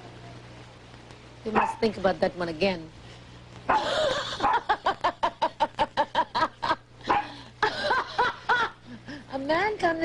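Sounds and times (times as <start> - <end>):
woman laughing loudly: 3.8 - 6.9, 7.6 - 9.0.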